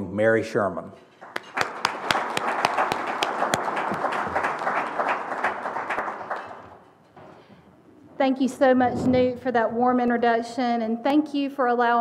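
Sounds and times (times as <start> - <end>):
audience applauding: 1.2 - 6.9.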